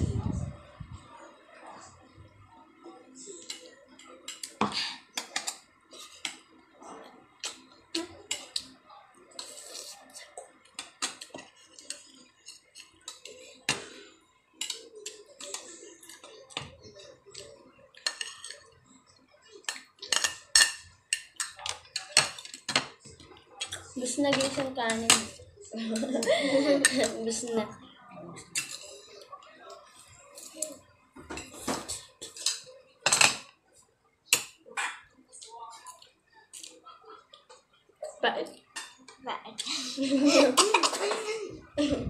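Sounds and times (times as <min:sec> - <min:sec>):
spoons clinking on plates: 0:10.6 - 0:18.8, 0:19.5 - 0:27.5, 0:28.4 - 0:29.3, 0:30.3 - 0:33.6, 0:38.7 - 0:39.2.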